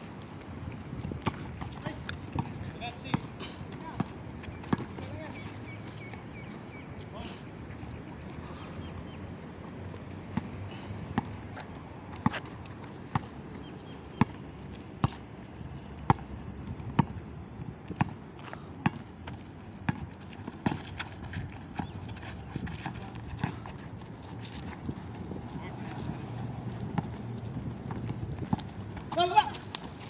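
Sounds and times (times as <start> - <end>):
basketball bouncing on asphalt: 0.9 - 3.3, 3.9 - 5.5, 10.2 - 15.3, 16.0 - 25.4, 26.6 - 30.0.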